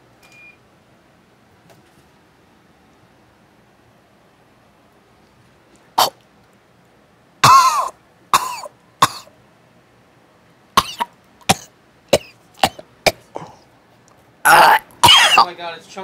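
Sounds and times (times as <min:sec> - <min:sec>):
man coughing and gagging: 0:07.4 - 0:09.3, 0:10.8 - 0:13.6, 0:14.5 - 0:15.6.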